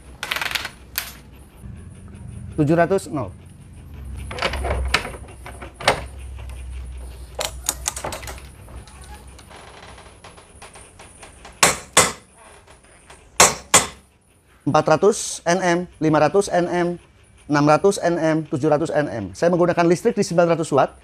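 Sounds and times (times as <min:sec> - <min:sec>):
loud knocks: 0:11.4 - 0:12.2.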